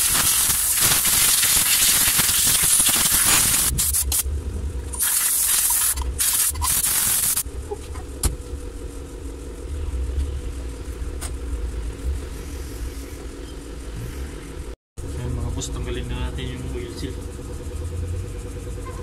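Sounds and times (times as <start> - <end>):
air blow gun hissing: 0.0 - 4.2, 5.0 - 7.4
low steady hum: 3.7 - 19.0.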